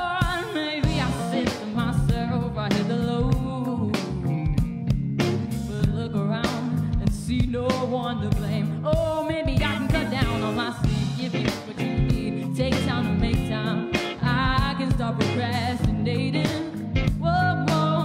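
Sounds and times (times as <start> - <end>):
live rock band playing: 0.0 - 18.0.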